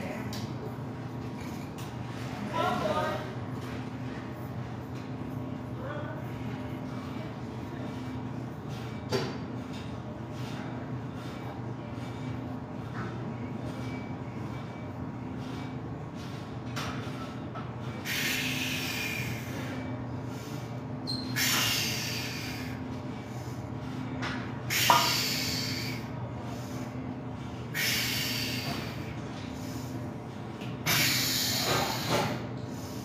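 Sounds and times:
steady low hum: 0:00.0 - 0:33.0
forceful hissing breaths: 0:17.9 - 0:30.2, 0:30.8 - 0:33.0.

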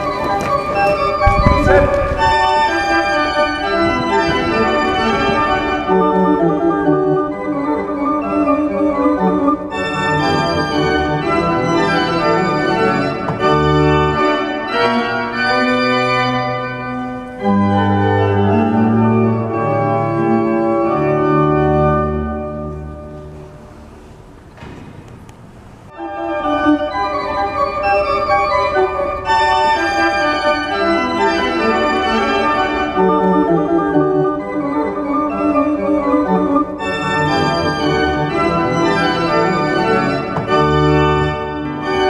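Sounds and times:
pipe organ playing chords: 0:00.0 - 0:24.8, 0:25.4 - 0:42.0
deep organ bass notes: 0:01.0 - 0:15.5.

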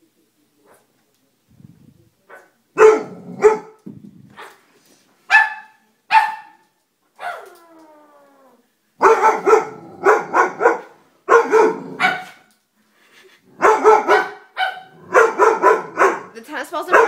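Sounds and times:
dog barking sharply: 0:02.3 - 0:03.8, 0:05.3 - 0:06.6, 0:07.2 - 0:07.5, 0:09.0 - 0:12.5, 0:13.6 - 0:16.3.

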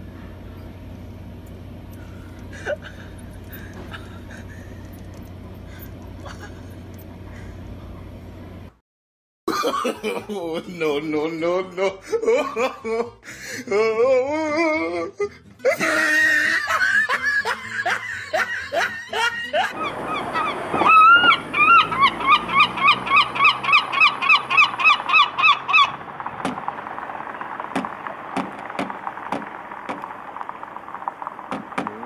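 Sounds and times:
herring gull long call: 0:19.7 - 0:32.0.

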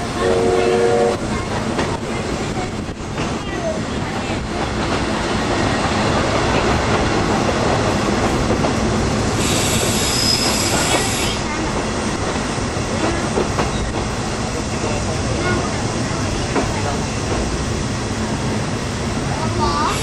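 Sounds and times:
train wheels rumbling: 0:00.0 - 0:20.0
high squealing hiss: 0:09.4 - 0:11.5.

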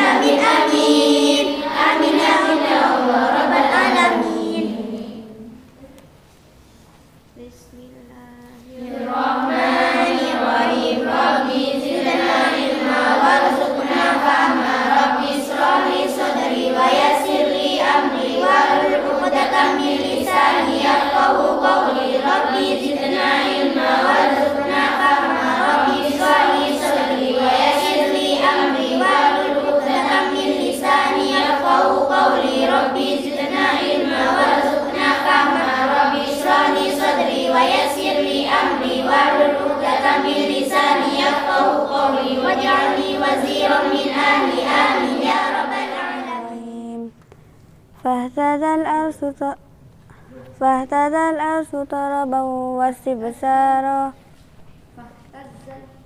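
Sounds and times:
girls chanting in unison: 0:00.0 - 0:05.7, 0:08.7 - 0:47.1.

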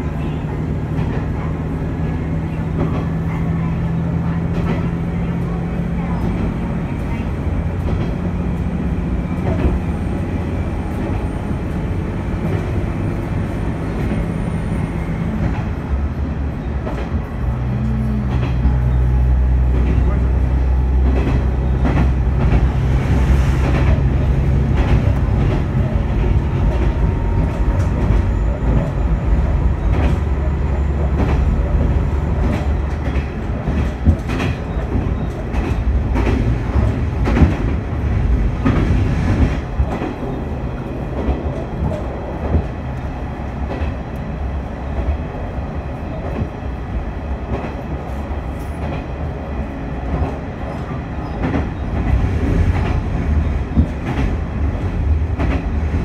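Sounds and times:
railcar engine and wheels rumbling: 0:00.0 - 0:56.0
wheels clacking over rail joints: 0:16.6 - 0:45.2.

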